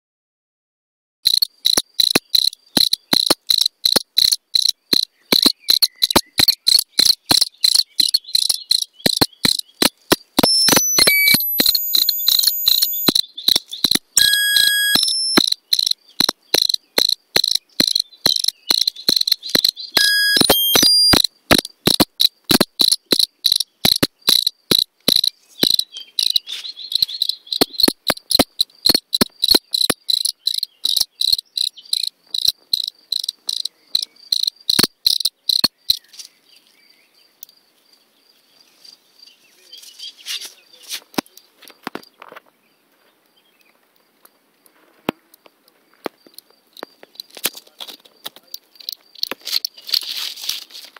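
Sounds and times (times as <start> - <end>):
cricket chirping: 1.2 - 42.5, 43.3 - 50.7
leaves rustling: 25.3 - 27.2, 49.4 - 50.9.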